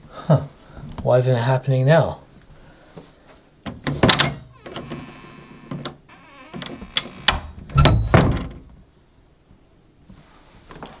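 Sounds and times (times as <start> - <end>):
door thudding against frame: 6.4 - 8.7.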